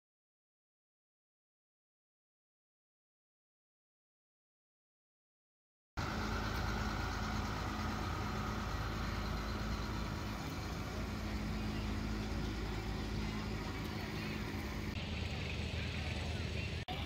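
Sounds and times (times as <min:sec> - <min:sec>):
tractor diesel engine passing: 0:06.0 - 0:17.0.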